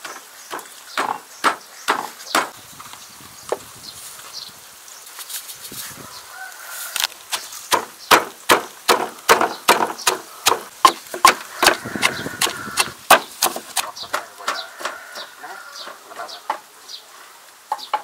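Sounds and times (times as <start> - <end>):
wooden pestle pounding in mortar: 7.7 - 14.9.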